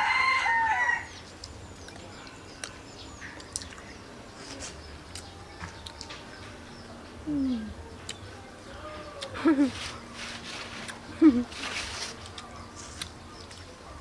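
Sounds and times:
rooster crowing: 0.0s - 1.1s.

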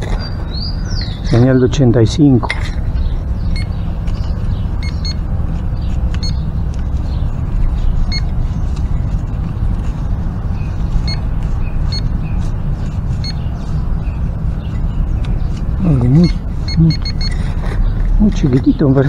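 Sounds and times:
short high beeps: 16.2s - 17.4s.

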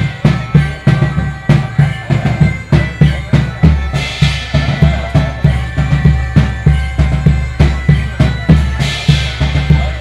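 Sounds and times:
bagpipes: 0.0s - 10.0s
drum beat: 0.0s - 10.0s.

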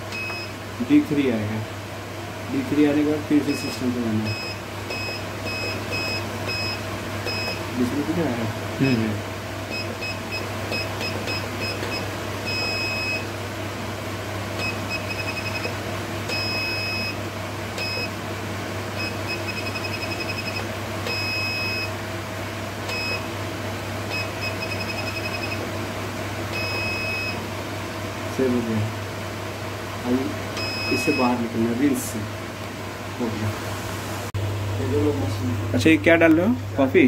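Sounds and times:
vending machine keypad beeps: 0.1s - 0.5s, 4.3s - 7.6s, 9.7s - 13.3s, 14.6s - 17.2s, 17.8s - 18.1s, 19.0s - 21.9s, 22.9s - 23.2s, 24.1s - 25.6s, 26.5s - 27.4s, 30.6s - 31.3s.

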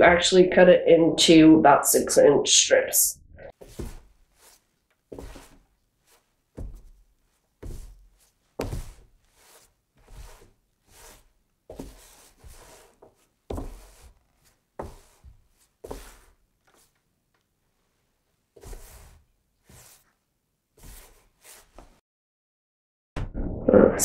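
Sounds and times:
rolling pin on dough: 3.5s - 17.0s, 18.6s - 20.2s, 20.8s - 22.0s.

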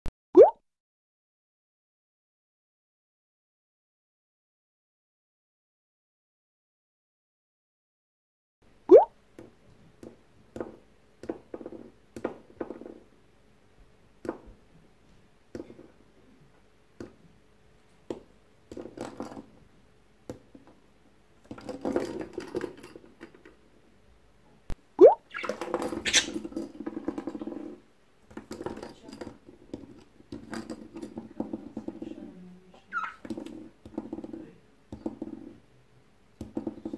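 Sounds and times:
plastic ball tapping and rolling: 8.9s - 13.1s, 14.2s - 14.7s, 17.0s - 17.3s, 18.0s - 19.6s, 20.2s - 20.8s, 21.4s - 23.7s, 25.0s - 35.6s, 36.4s - 36.9s.

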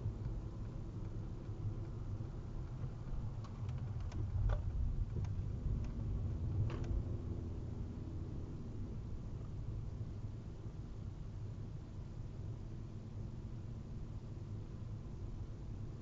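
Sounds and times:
car cabin road rumble: 0.0s - 11.4s.

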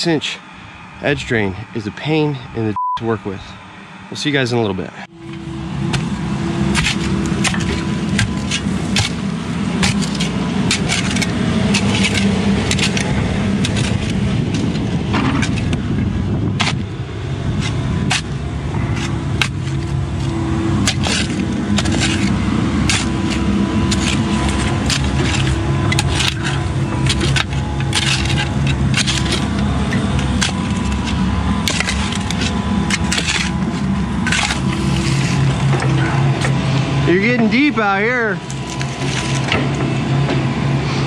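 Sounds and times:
heavy equipment engine running: 0.0s - 41.0s
shovel chopping rocky dirt: 5.8s - 15.9s, 16.6s - 16.9s, 17.6s - 36.5s.

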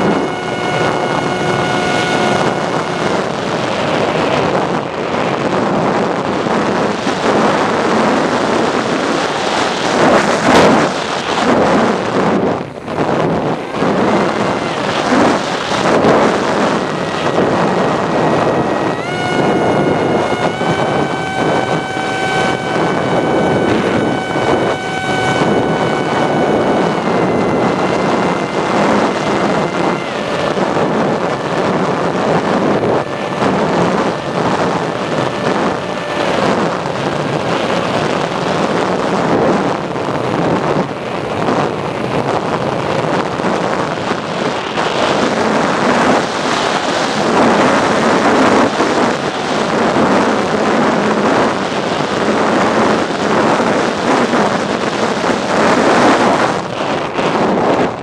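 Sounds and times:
model plane motor whining: 0.0s - 58.0s
wind rushing over microphone: 0.0s - 58.0s.

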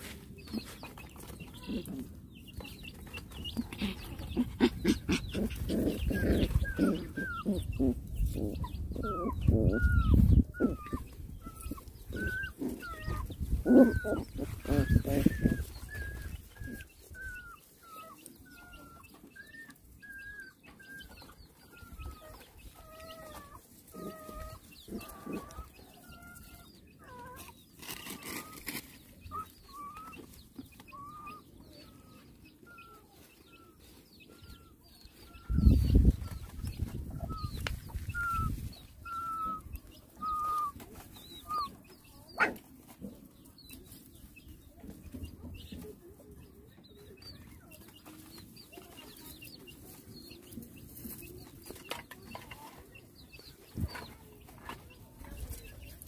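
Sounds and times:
puppy whimpering: 3.6s - 27.4s, 29.3s - 30.3s, 37.2s - 39.6s, 40.2s - 40.8s.

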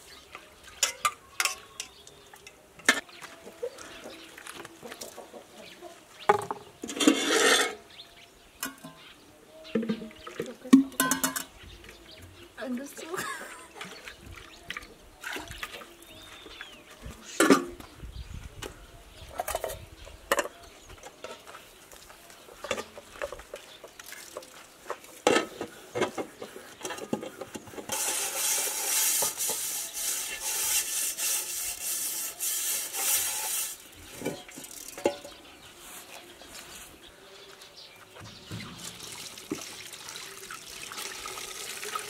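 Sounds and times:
dishes and pans clinking: 0.8s - 2.1s, 9.8s - 11.6s, 33.0s - 35.4s
washing noise: 27.9s - 35.0s.

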